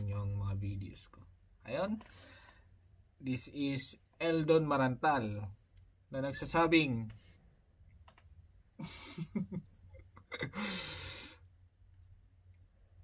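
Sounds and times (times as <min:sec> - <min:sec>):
man laughing breathily: 0:08.8 - 0:11.4.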